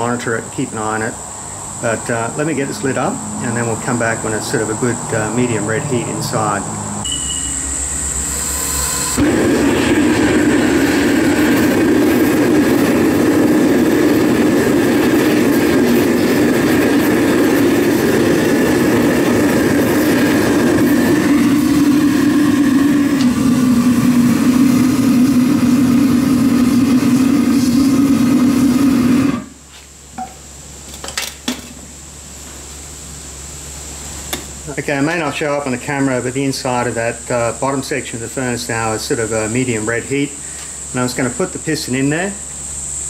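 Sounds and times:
gas burner roaring: 0.0s - 43.0s
faint whistle: 7.0s - 9.2s.

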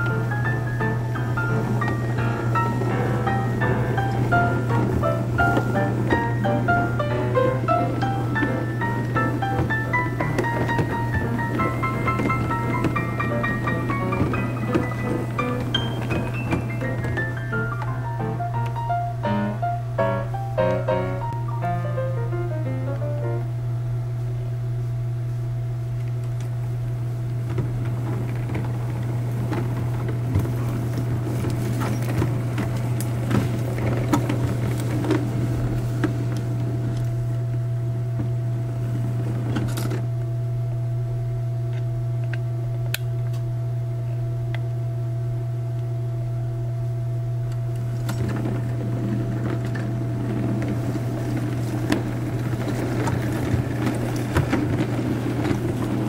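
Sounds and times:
wheels clicking over rail joints: 0.0s - 18.0s, 27.6s - 37.1s, 48.0s - 56.0s
electric motor hum: 0.0s - 45.9s.

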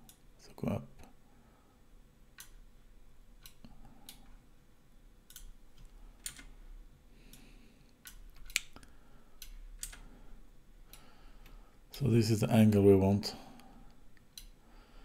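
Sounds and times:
mouse and keyboard clicks: 5.3s - 6.5s.

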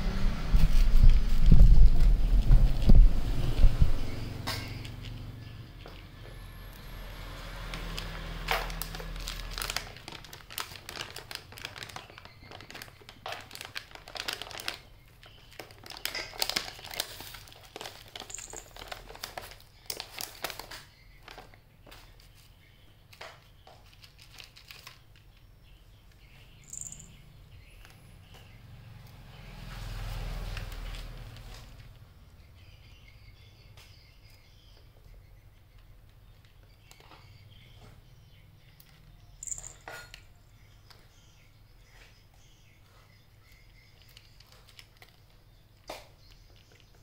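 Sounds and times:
cat crunching dry kibble: 7.7s - 20.7s, 23.8s - 25.3s.

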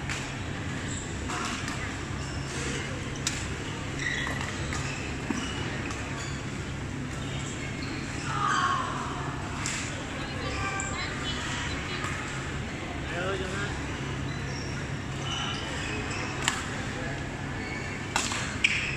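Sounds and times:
shoes squeaking on court: 0.7s - 8.3s, 14.2s - 18.9s
murmur of voices: 1.2s - 18.8s
racket hitting shuttlecock: 18.1s - 18.8s.

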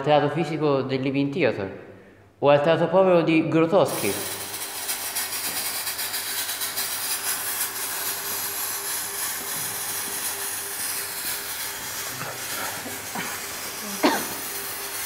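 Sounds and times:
steady hissing noise: 3.8s - 15.0s.

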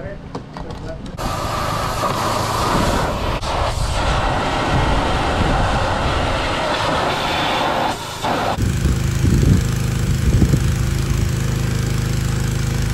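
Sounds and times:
pressure washer water jet spraying: 1.2s - 8.7s.

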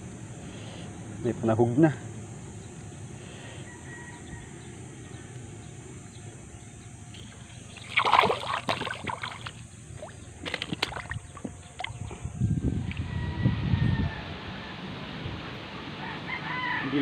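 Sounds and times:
water splashing: 7.2s - 12.0s.

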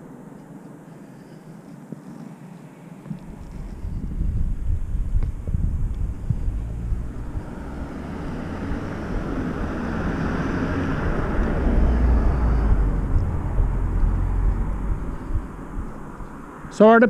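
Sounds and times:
wind rumble on microphone: 3.0s - 16.9s
vehicle passing: 5.3s - 17.0s.

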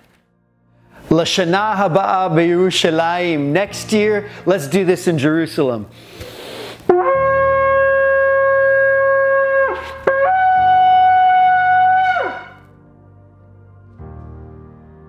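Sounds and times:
shofar blasts: 6.9s - 12.7s.

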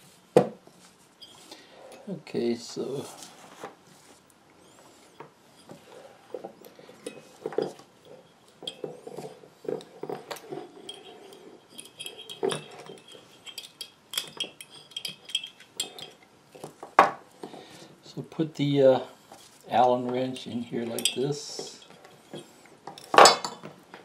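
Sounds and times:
metal tools clinking and scraping: 1.2s - 2.1s, 4.6s - 16.8s, 19.2s - 23.8s
short metallic rings: 10.8s - 16.2s.

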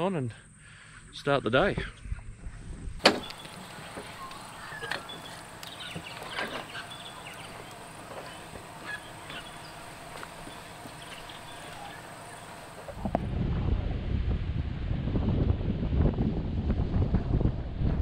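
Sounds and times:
background hiss: 0.0s - 13.3s
short bird calls: 3.0s - 13.0s.

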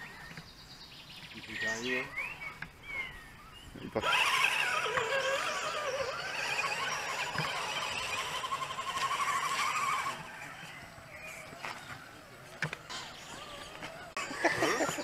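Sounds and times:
electric motor whining: 3.8s - 15.0s.

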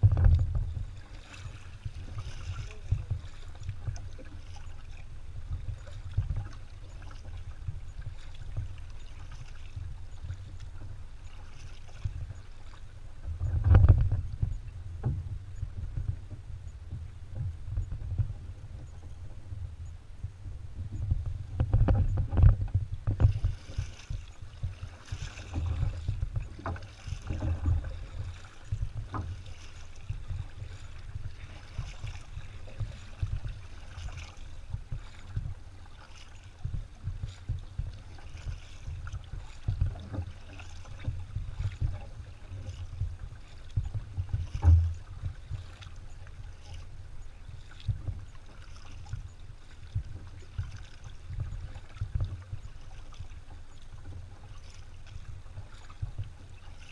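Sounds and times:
low rumble from kayak hull: 0.0s - 56.9s
paddle dipping through water: 0.0s - 56.9s.

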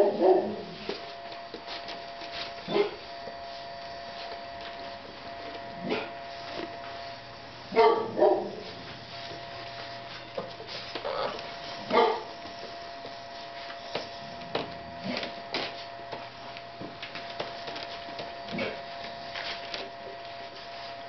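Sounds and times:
puppy barking: 0.0s - 0.7s, 2.7s - 3.0s, 5.8s - 6.1s, 7.7s - 8.7s, 11.2s - 12.3s
electrical hum: 0.0s - 21.0s
puppy crying: 11.0s - 12.2s.

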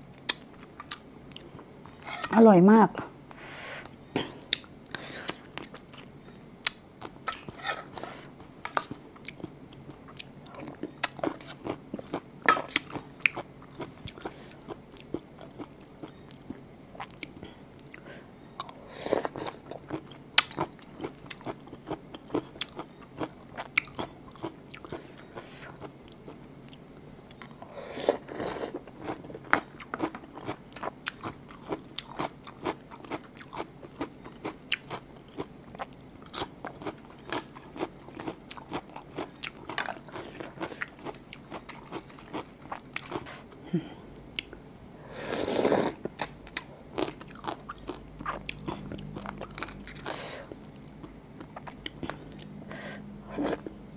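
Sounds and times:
chewing and wet mouth sounds: 8.7s - 18.0s, 18.6s - 43.5s, 46.1s - 52.6s.

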